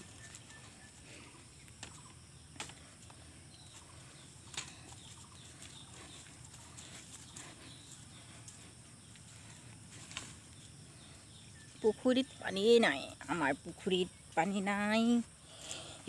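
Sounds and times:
distant birds: 0.0s - 16.0s
high insect drone: 0.0s - 16.0s.

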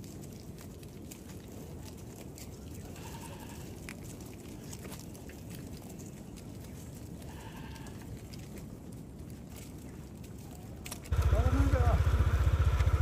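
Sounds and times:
hooves clicking on gravel: 0.0s - 13.0s
livestock bleating: 2.9s - 3.8s, 7.2s - 8.1s
steady low rumble: 11.0s - 13.0s.

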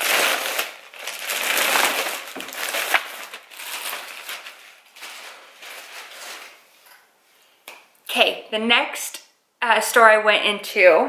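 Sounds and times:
plastic bag crinkling: 0.0s - 6.7s.

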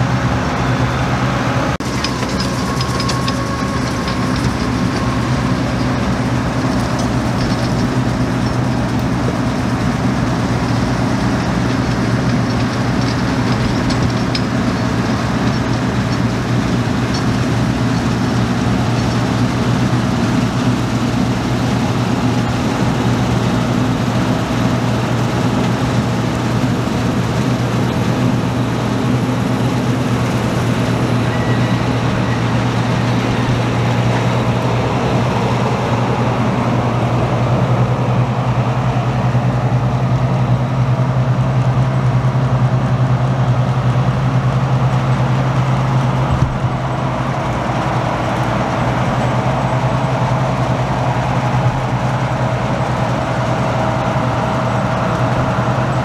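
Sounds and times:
combine harvester running: 0.0s - 56.0s
machinery whine: 0.0s - 56.0s.

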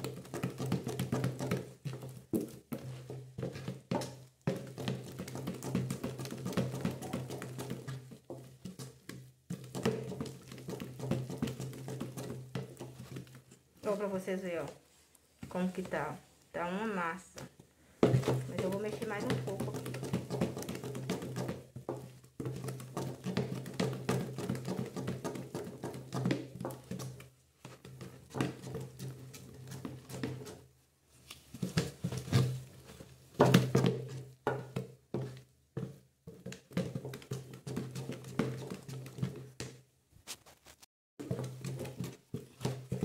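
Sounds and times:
spoon scraping plastic tub: 5.8s - 14.8s, 17.2s - 24.0s, 40.3s - 43.0s.

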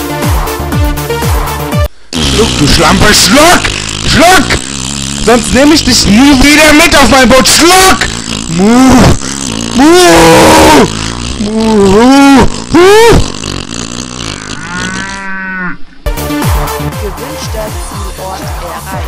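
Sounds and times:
electronic music with thumping beat: 0.0s - 1.9s, 16.1s - 19.0s
drawn-out vocal cries: 2.2s - 16.8s.

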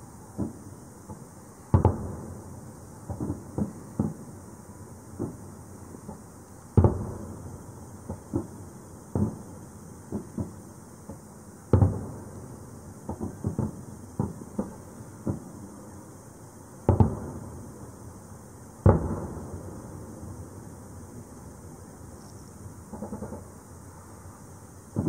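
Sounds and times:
firework pops and bangs: 0.3s - 2.4s, 3.0s - 4.4s, 5.1s - 15.8s, 16.8s - 17.6s, 18.8s - 20.6s, 22.8s - 23.6s
firework booms with echoes: 0.3s - 4.4s, 5.1s - 15.8s, 16.8s - 17.8s, 18.8s - 20.7s, 22.8s - 23.6s.

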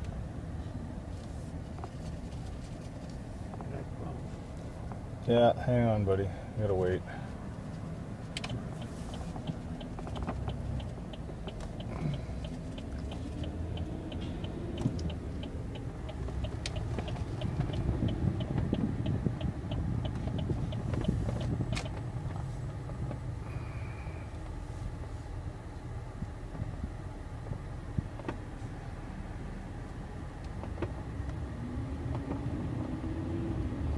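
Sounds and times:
car engine and tyres rumbling: 0.0s - 33.9s
turn-signal indicator ticking: 8.3s - 23.3s.

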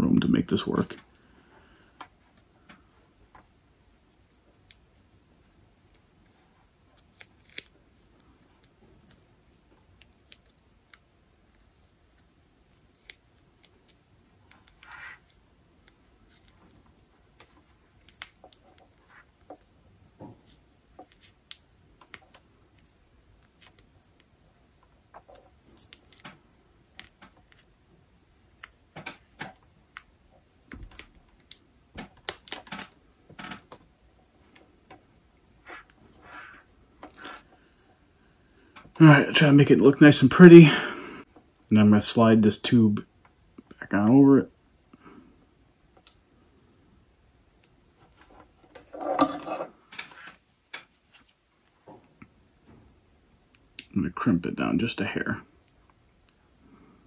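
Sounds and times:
hands rustling wire: 4.1s - 37.9s.

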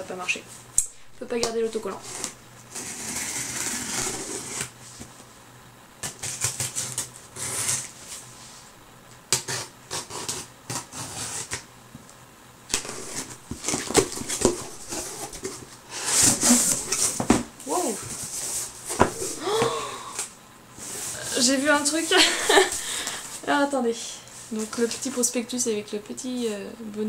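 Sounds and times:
paper and cardboard rustling: 1.2s - 5.1s, 12.8s - 19.5s.

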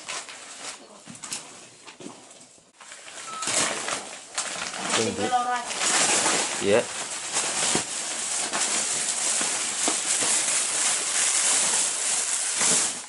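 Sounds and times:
wrapping paper rustling and tearing: 0.0s - 1.6s, 2.8s - 13.0s.

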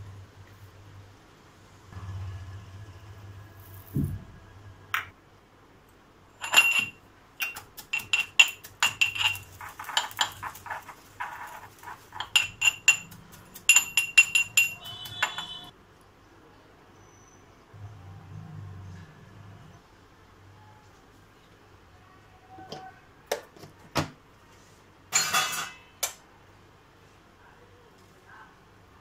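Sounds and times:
metal pestle clinking in mortar: 6.4s - 15.7s
seeds pouring into mortar: 8.6s - 12.4s.

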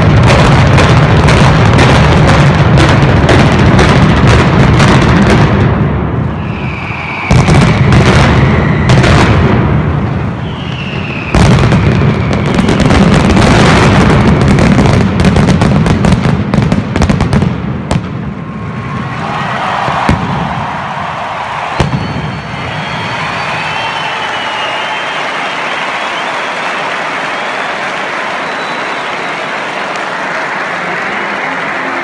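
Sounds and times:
firecracker barrage: 0.0s - 32.0s
long falling whistles: 6.2s - 9.4s, 10.1s - 13.2s, 18.4s - 30.1s.

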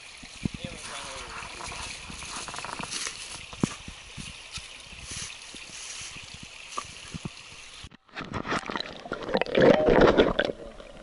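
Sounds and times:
running stream hiss: 0.0s - 7.9s
water sloshing around rocks: 0.5s - 11.0s.

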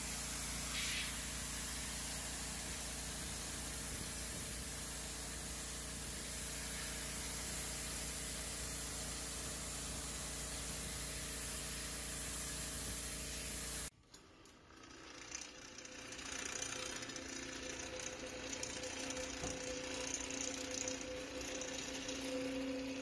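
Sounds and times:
pressure washer spraying: 0.0s - 13.9s
floor-stripping machine humming: 0.0s - 23.0s.

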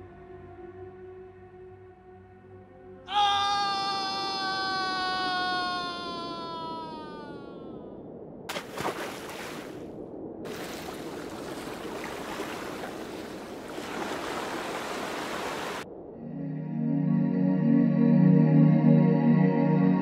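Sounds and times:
water splashes: 8.5s - 15.8s
river water rushing: 10.5s - 15.8s.

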